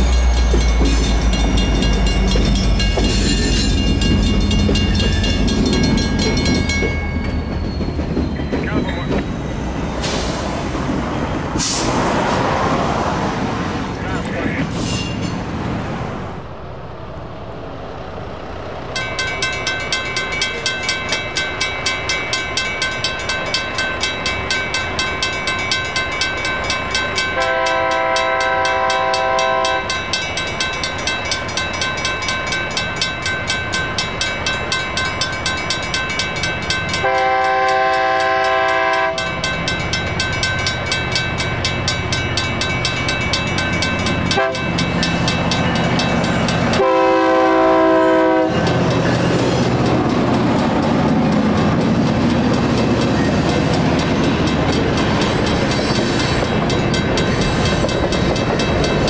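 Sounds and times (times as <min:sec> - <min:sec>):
railroad crossing bell ringing: 0:00.0 - 0:10.4, 0:18.9 - 0:59.0
locomotive engine hum: 0:00.0 - 0:59.0
train horn blasts: 0:27.4 - 0:30.0, 0:37.0 - 0:39.4, 0:44.3 - 0:44.7, 0:46.7 - 0:48.8.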